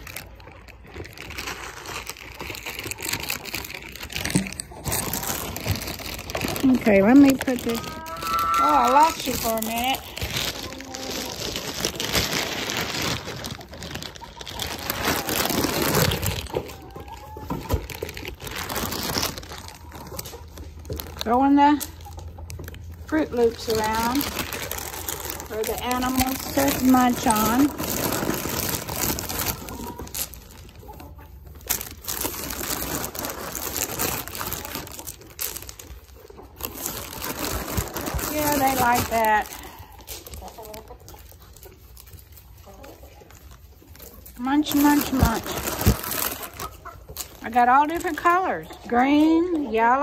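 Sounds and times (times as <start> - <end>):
cereal bag crinkling: 0.0 - 49.3
goats and chickens pecking: 0.0 - 50.0.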